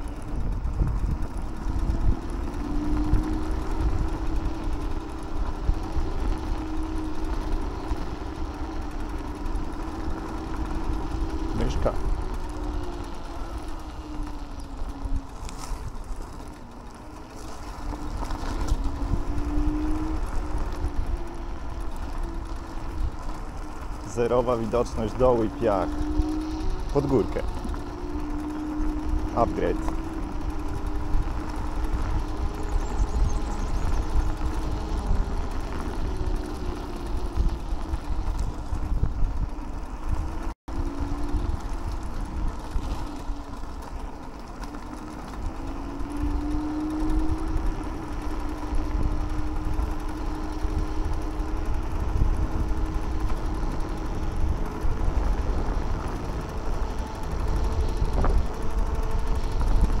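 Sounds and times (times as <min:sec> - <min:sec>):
electric scooter motor whine: 0:00.0 - 1:00.0
wind and road rumble: 0:00.0 - 1:00.0.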